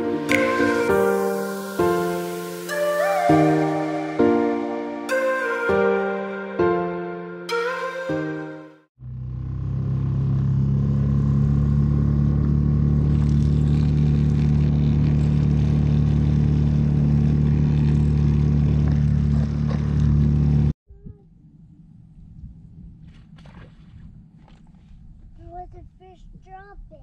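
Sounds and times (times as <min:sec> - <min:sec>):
outboard motor running: 0:10.4 - 0:20.7.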